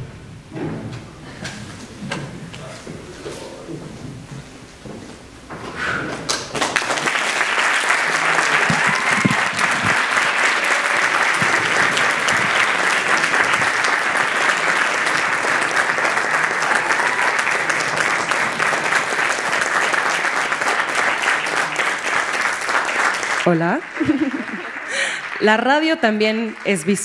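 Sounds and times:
audience applauding: 6.2 - 27.0.

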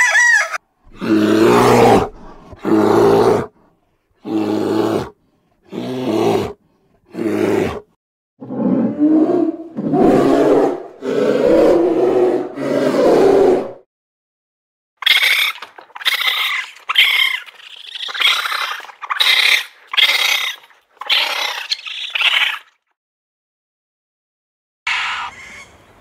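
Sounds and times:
polar bear calling: 0.0 - 2.0
raccoon high-pitched calls: 24.9 - 25.8.

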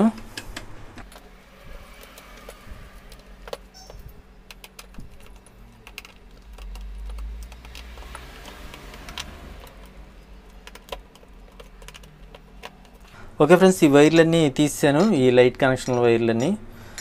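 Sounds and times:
low handling rumble: 0.1 - 7.6.

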